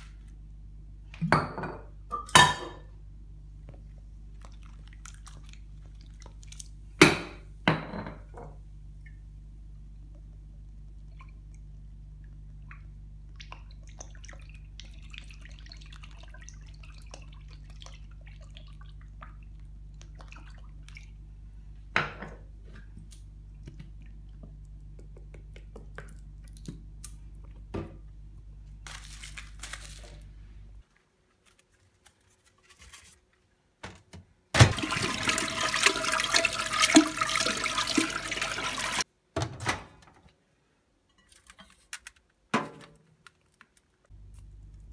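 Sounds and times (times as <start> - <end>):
steady low hum: 1.8 - 30.8, 44.1 - 44.9
running water rushing: 34.7 - 39.0.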